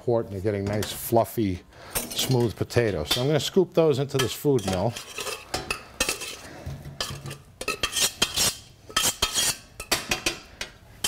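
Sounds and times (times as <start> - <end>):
spoon scraping metal pot: 4.1 - 10.3.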